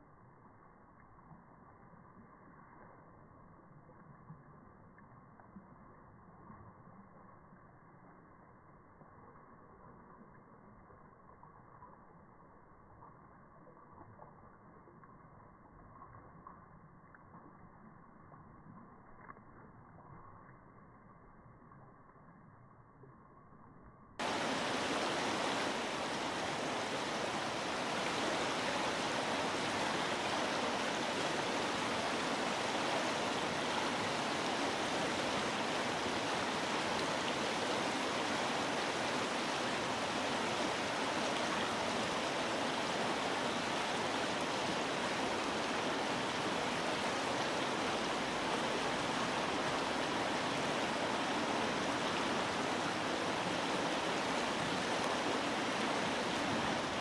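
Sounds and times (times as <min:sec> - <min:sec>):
river water flowing: 0:24.2 - 0:57.0.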